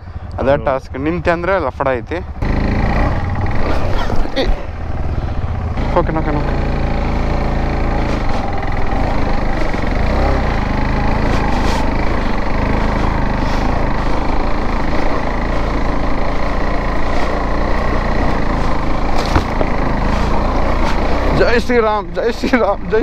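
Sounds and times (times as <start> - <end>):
motorcycle engine running: 0.0 - 23.0
sharp knocks from bumps: 19.0 - 21.4.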